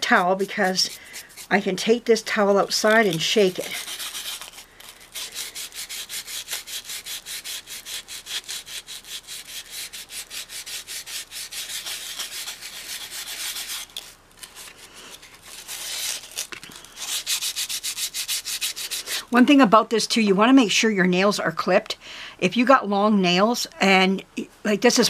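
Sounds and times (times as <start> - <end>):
sandpaper rasping: 0.0 - 1.6, 2.8 - 19.3.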